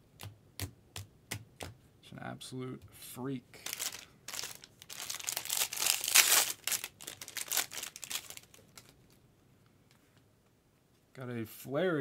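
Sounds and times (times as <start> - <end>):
plastic packaging crinkling and tearing: 3.6 - 9.2.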